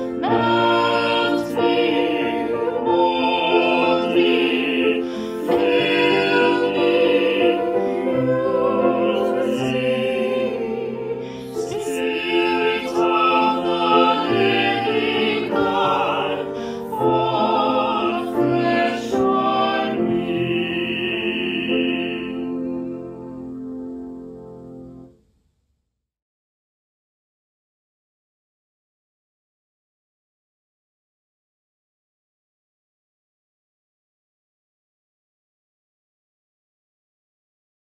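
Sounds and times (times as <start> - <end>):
operatic singing: 0.0 - 23.0.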